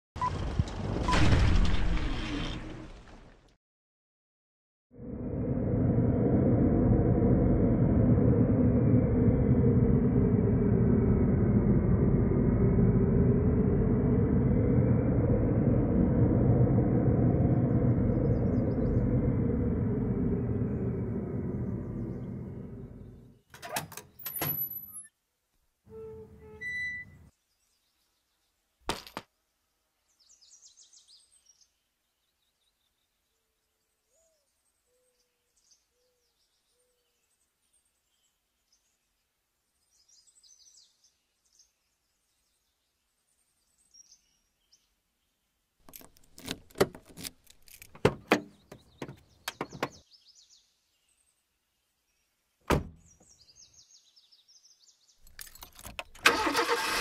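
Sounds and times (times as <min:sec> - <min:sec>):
faint birds chirping: 0:05.1 - 0:23.5, 0:29.4 - 0:56.1
keys rattling: 0:45.9 - 0:48.0, 0:55.2 - 0:56.2
car door opening clicks and knocks: 0:46.0 - 0:50.0, 0:52.7 - 0:53.0
car door slamming: 0:52.7 - 0:53.0.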